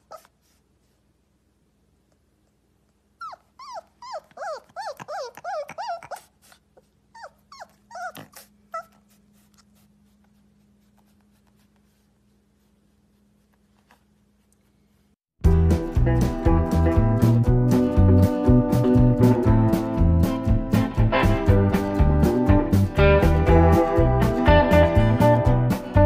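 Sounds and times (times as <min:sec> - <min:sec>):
puppy whining yips: 0:00.0 - 0:00.5, 0:03.2 - 0:09.2.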